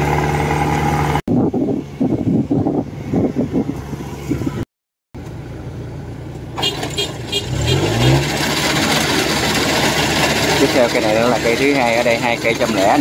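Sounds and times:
combine harvester engine revving: 0.0s - 1.2s, 6.5s - 13.0s.

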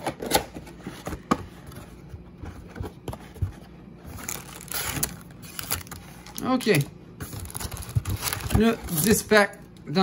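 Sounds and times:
crinkly rustling of packs: 4.1s - 9.3s.

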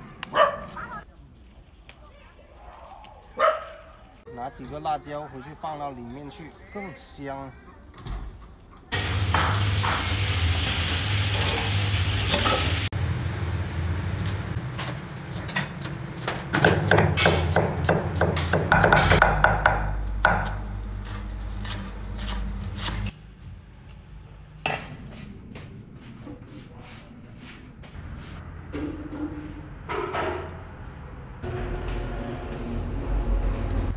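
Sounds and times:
tap water running into sink: 9.0s - 12.9s
cleaver chopping on wooden board: 16.6s - 20.6s.

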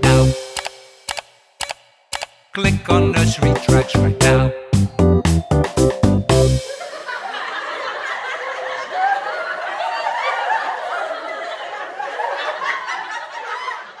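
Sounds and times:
people giggling and laughing: 6.6s - 14.0s.

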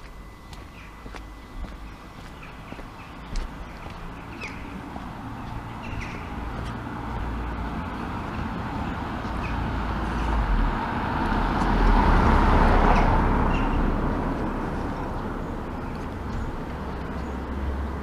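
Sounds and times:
car passing close by: 6.7s - 16.0s.

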